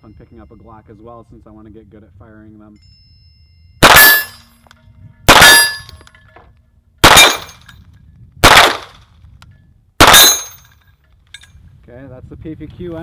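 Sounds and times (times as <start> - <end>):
pistol shots: 3.8 - 4.4, 5.3 - 6.0, 7.0 - 7.6, 8.4 - 9.0, 10.0 - 10.6.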